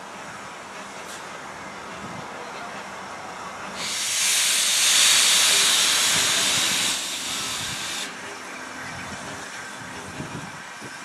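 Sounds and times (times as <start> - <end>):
steam locomotive hissing steam: 2.8 - 11.0.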